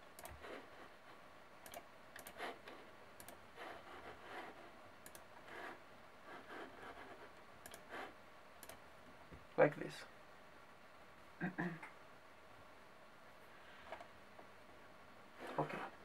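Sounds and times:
computer mouse clicking: 0.1s - 0.6s, 1.6s - 3.4s, 5.0s - 5.7s, 7.6s - 8.0s, 8.6s - 8.8s, 13.9s - 14.1s.

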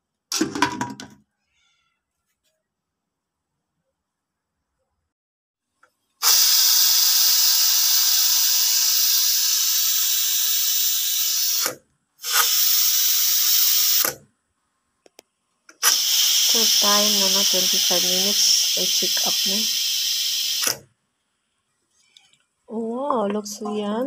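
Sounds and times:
pressure cooker steam hissing: 6.2s - 14.2s, 15.7s - 20.8s.

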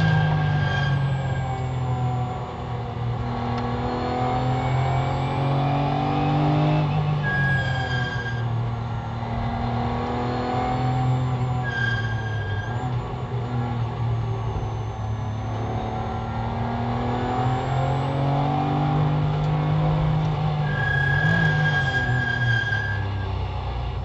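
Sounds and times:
racing car engine from cabin: 0.0s - 24.0s
brief high-pitched tone: 14.1s - 18.0s.

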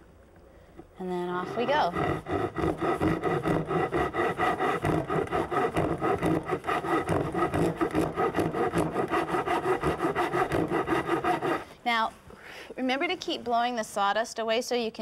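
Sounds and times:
hand saw ripping wood: 1.5s - 11.7s.

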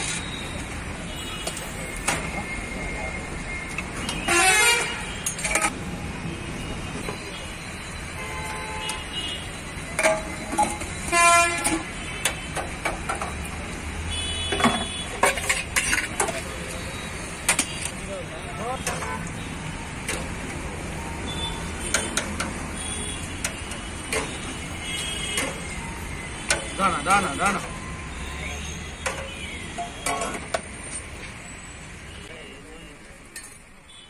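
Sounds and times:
traffic hum: 0.0s - 34.0s
vehicle horns honking: 4.0s - 5.7s, 8.1s - 12.7s, 14.1s - 16.0s, 16.9s - 19.8s, 21.2s - 30.5s
utensils clinking on steel pots: 9.9s - 13.6s, 14.5s - 16.8s, 18.8s - 19.3s, 23.4s - 24.4s, 25.4s - 25.8s, 29.0s - 30.6s, 33.3s - 33.7s.

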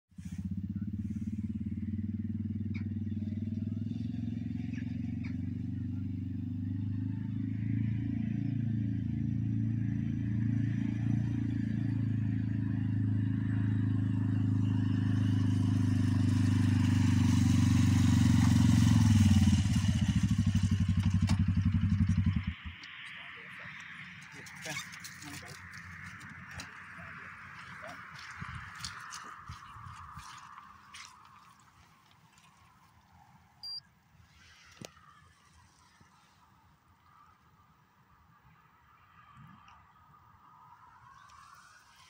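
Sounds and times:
quad bike engine running: 0.2s - 32.5s.

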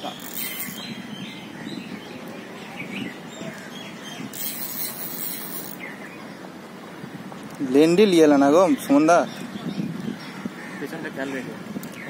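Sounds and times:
small birds chirping: 0.0s - 6.4s
outdoor background noise: 0.0s - 12.0s.

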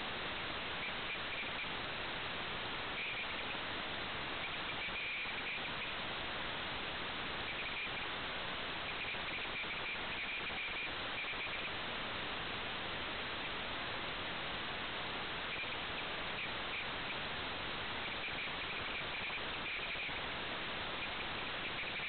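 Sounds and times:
static hiss: 0.0s - 22.0s
faint high chirping: 0.8s - 1.8s, 3.0s - 3.6s, 4.4s - 6.0s, 7.4s - 8.1s, 8.8s - 11.8s, 15.5s - 17.2s, 18.0s - 20.2s, 20.9s - 22.0s.

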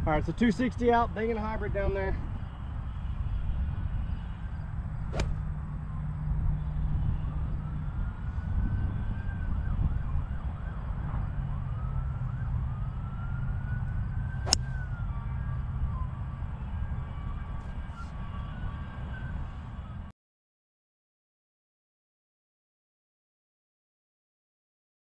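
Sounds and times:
faint siren wailing: 1.5s - 20.1s
wind rumble on microphone: 1.9s - 20.1s.

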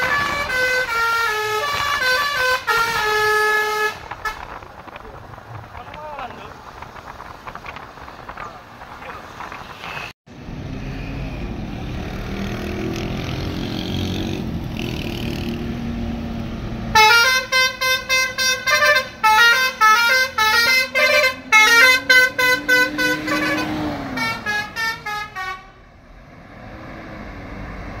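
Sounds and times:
multi-tone bus horn melody: 0.0s - 4.6s, 16.9s - 25.9s
bus engine: 0.0s - 28.0s
traffic noise: 0.0s - 28.0s.

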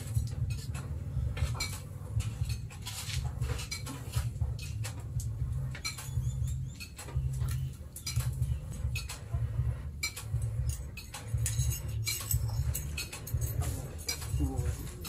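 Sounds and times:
pulsing low rumble: 0.0s - 3.6s, 4.2s - 15.0s.

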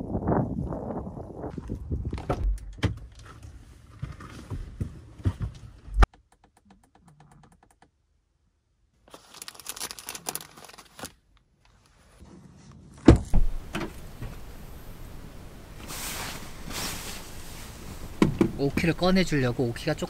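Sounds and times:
plastic wrappers crinkling: 9.1s - 11.2s
car tailgate clunk: 13.1s - 14.4s.

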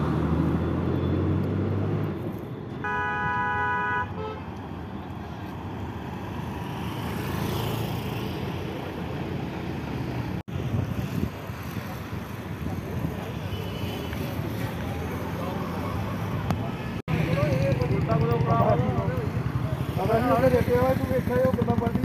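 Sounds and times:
tyre and road noise: 0.0s - 22.0s
vehicle horn: 2.8s - 4.5s.

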